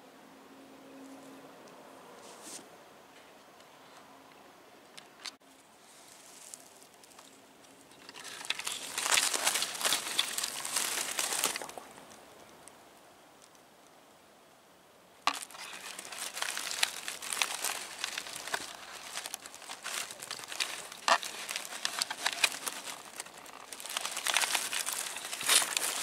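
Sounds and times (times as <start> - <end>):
crinkling crackling rustle: 4.9 - 12.8, 15.2 - 26.0.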